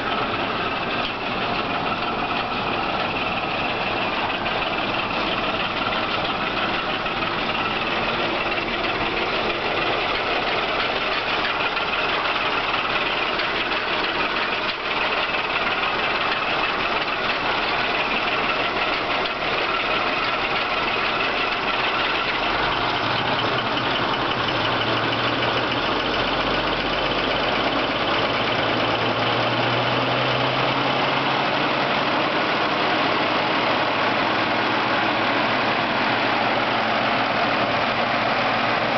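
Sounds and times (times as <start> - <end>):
fire engine idling: 0.0 - 38.9.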